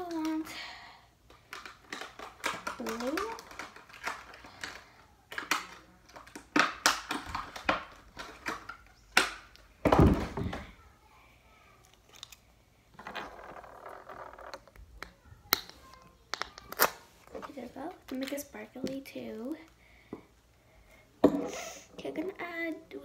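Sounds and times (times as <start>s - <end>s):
small objects clicking on a desk: 1.3s - 9.6s.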